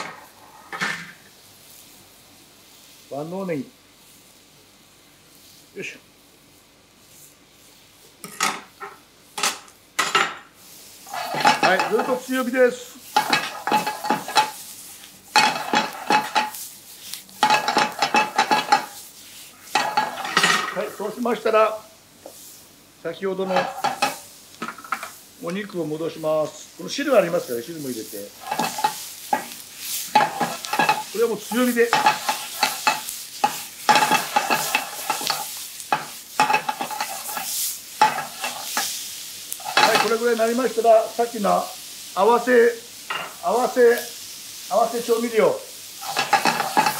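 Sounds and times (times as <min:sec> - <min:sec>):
faint sizzle: 0:00.0 - 0:46.9
metal utensil scraping frying pan: 0:11.0 - 0:16.7, 0:17.4 - 0:21.0, 0:23.4 - 0:25.2, 0:28.3 - 0:40.6, 0:43.1 - 0:43.8, 0:46.0 - 0:46.9.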